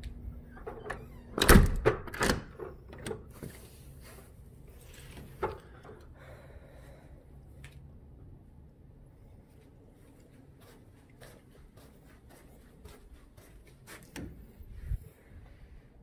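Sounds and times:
door knocking and rattling shut: 0:00.6 - 0:03.2
door latch clicks: 0:00.7 - 0:03.2.

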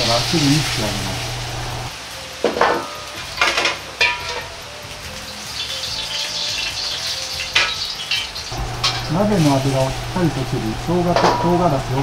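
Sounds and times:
hot oil sizzling: 0:00.0 - 0:12.0
ladle knocking against wok: 0:11.2 - 0:11.5.

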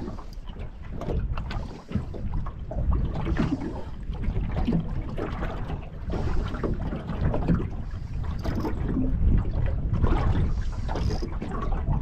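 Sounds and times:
small waves slapping boat: 0:00.0 - 0:12.0
wind buffeting microphone: 0:00.0 - 0:12.0.

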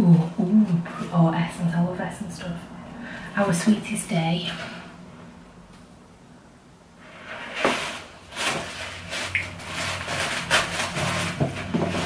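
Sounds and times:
packaging rustling: 0:07.5 - 0:12.0.

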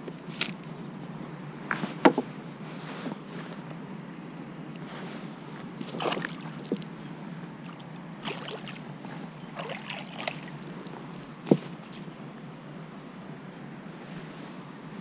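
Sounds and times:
fish thrashing and water splashing: 0:05.8 - 0:06.9, 0:07.6 - 0:08.9, 0:09.5 - 0:11.8.

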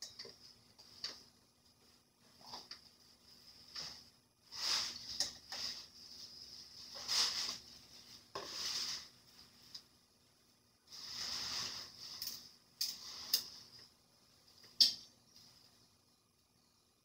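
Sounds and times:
scraping and rustling noises: 0:00.2 - 0:10.0, 0:10.8 - 0:14.0.

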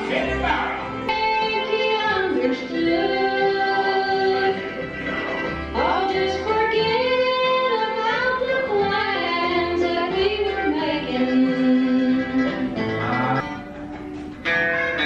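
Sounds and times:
plucked guitar: 0:00.0 - 0:15.0
woman singing country melody: 0:01.1 - 0:13.4.

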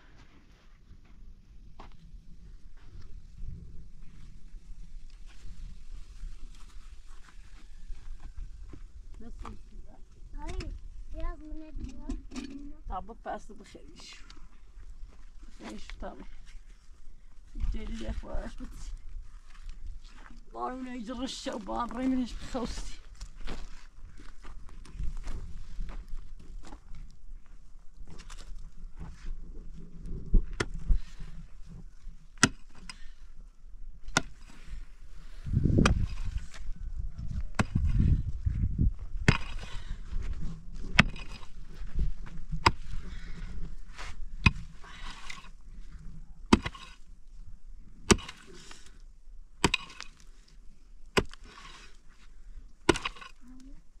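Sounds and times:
hand tool striking: 0:49.6 - 0:50.2, 0:52.9 - 0:53.4.

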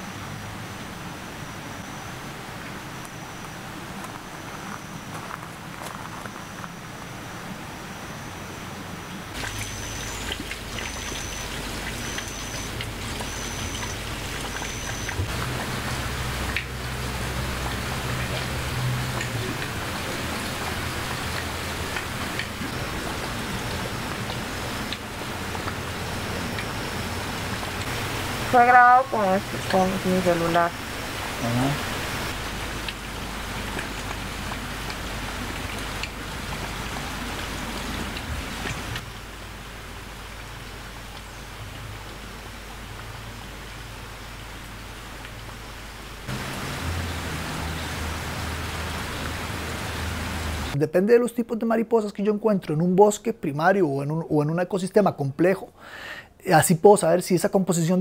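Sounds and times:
steady rain falling: 0:00.0 - 0:50.8
rain drop ticks: 0:09.4 - 0:28.6, 0:32.4 - 0:43.2, 0:45.2 - 0:45.6.

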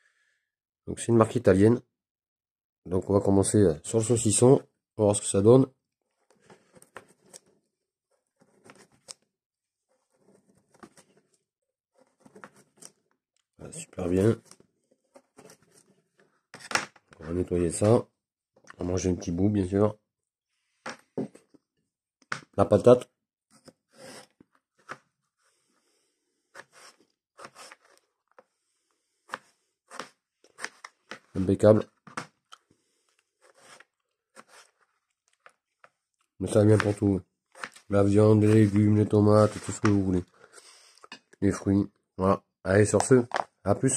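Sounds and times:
knife cutting on a cutting board: 0:26.5 - 0:28.0, 0:33.4 - 0:34.8
knife cutting potato on board: 0:26.5 - 0:28.0, 0:29.3 - 0:31.3, 0:33.4 - 0:34.8, 0:36.7 - 0:37.8.

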